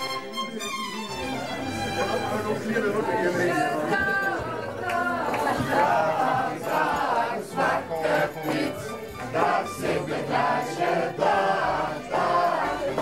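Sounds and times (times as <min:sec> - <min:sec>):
music: 0:00.0 - 0:13.0
group singing: 0:02.6 - 0:13.0.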